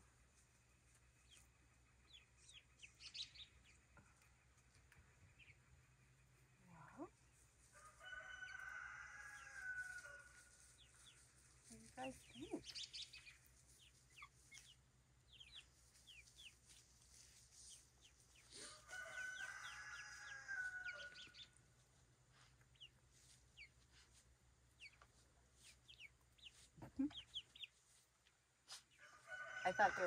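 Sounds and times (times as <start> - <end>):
chicks peeping: 0.2 - 29.9
drawn-out chicken call: 7.7 - 11.0, 18.4 - 21.6, 28.7 - 30.0.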